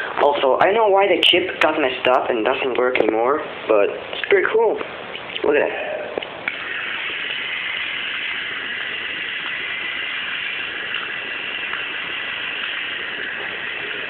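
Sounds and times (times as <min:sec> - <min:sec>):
toy motor whirring: 0:06.5 - 0:14.0.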